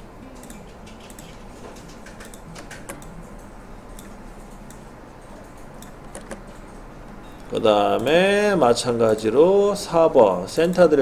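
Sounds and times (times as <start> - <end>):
low steady hum: 0.0 - 11.0
mouse and keyboard clicks: 0.4 - 3.1, 5.4 - 6.4.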